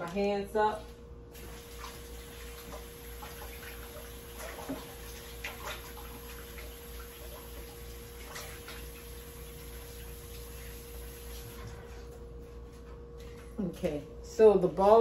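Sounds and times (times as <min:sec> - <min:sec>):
faint steady hum: 0:00.0 - 0:15.0
tap running water: 0:01.3 - 0:11.9
water splashes: 0:01.4 - 0:12.0.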